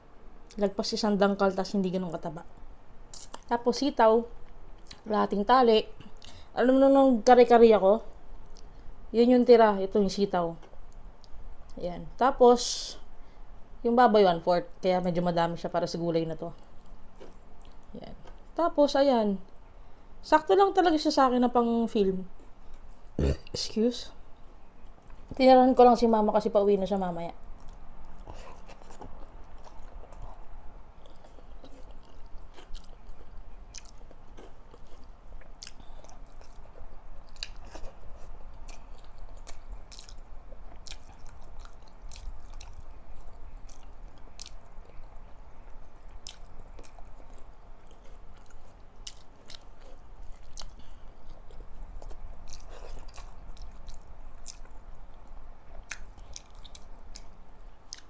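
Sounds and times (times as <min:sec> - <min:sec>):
faint low hum: 0:00.0 - 0:58.0
chewing and wet mouth sounds: 0:03.1 - 0:03.6, 0:04.3 - 0:05.1, 0:10.6 - 0:11.8, 0:16.4 - 0:18.6, 0:27.3 - 0:58.0.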